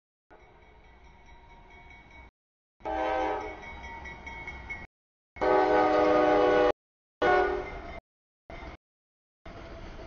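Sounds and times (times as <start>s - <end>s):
locomotive air horn blasts: 2.8s - 3.6s, 5.4s - 7.7s.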